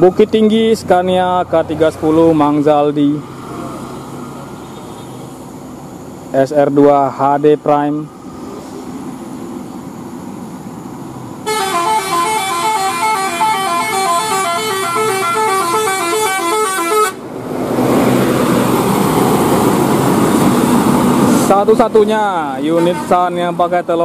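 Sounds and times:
bus engine and tyres passing: 0.0s - 24.0s
multi-tone air horn tune: 11.4s - 17.3s, 22.7s - 23.2s.

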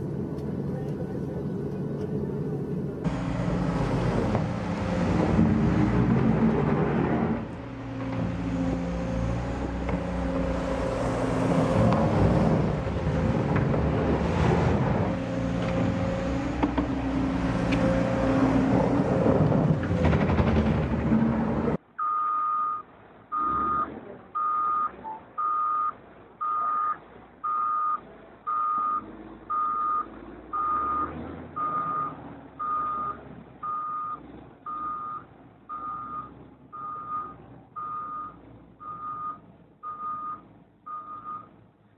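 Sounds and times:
diesel engine running: 0.0s - 21.9s
reversing alarm beeping: 22.0s - 41.5s.

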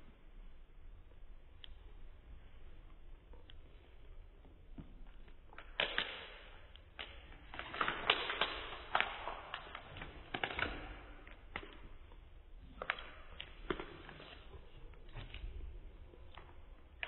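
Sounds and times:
sharp crackles and taps: 4.7s - 15.4s.

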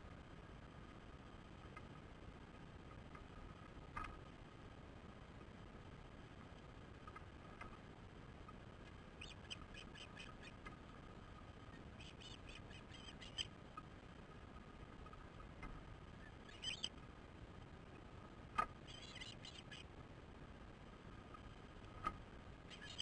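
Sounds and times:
low background hiss: 0.0s - 23.0s
ospreys chirping: 9.2s - 10.6s, 11.6s - 13.5s, 16.1s - 17.0s, 18.8s - 19.9s, 22.7s - 23.0s.

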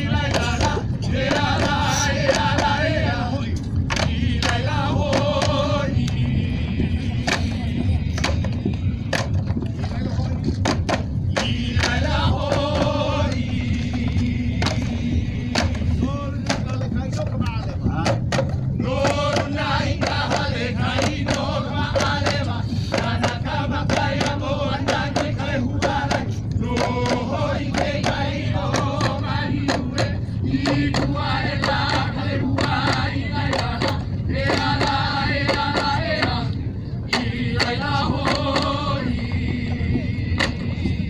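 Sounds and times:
group chanting: 0.0s - 8.4s, 11.3s - 16.8s, 18.6s - 41.0s.

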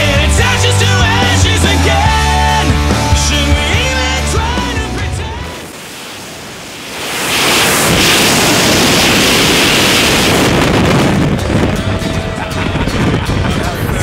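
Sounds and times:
rock music with singing: 0.0s - 5.8s
wind rushing over microphone: 5.2s - 14.0s.

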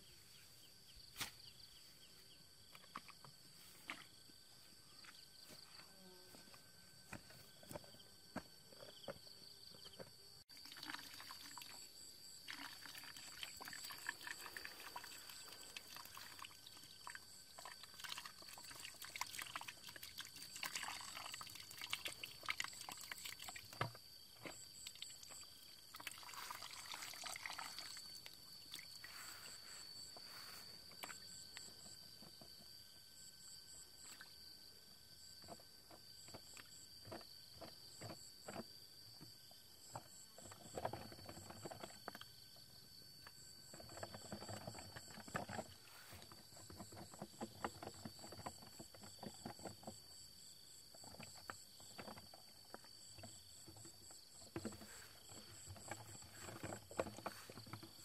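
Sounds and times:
water pouring into plastic bucket: 10.5s - 24.0s, 24.8s - 29.5s.

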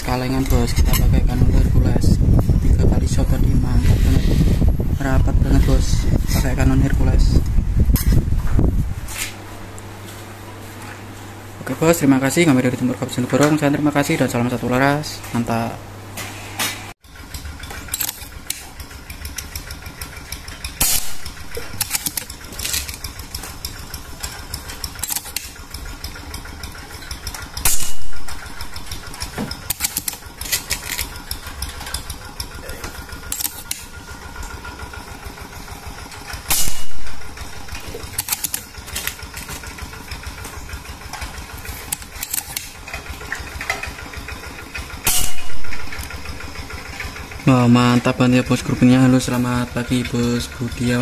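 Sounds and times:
steady low hum: 0.0s - 51.0s
air rifle shots: 20.8s - 22.3s, 27.6s - 28.5s, 36.5s - 37.4s, 45.0s - 45.8s
rifle action metallic clicks: 20.8s - 23.1s, 25.0s - 25.6s, 29.6s - 31.1s, 33.3s - 33.9s, 38.0s - 39.5s, 41.9s - 42.8s.

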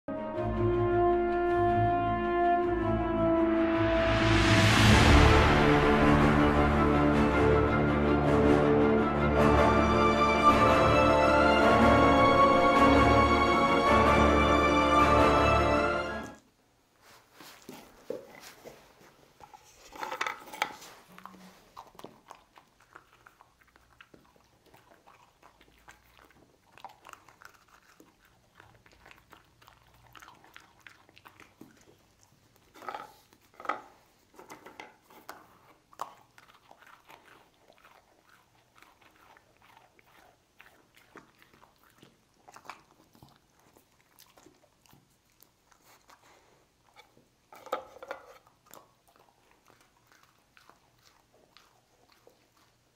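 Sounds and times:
dog crunching and chewing: 16.2s - 52.9s.

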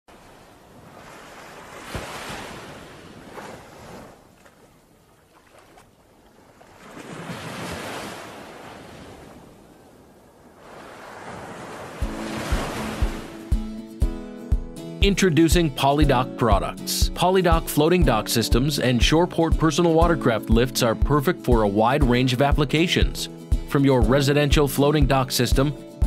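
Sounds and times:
ocean waves washing in: 0.1s - 4.4s, 5.3s - 14.5s
music with heavy drum hits: 12.0s - 14.8s.

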